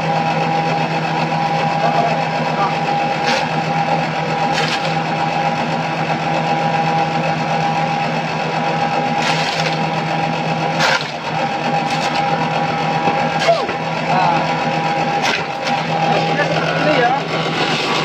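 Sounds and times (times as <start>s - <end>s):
forage chopper humming: 0.0s - 18.0s
harsh chopping bursts: 3.1s - 5.2s, 9.0s - 14.5s, 15.1s - 16.4s.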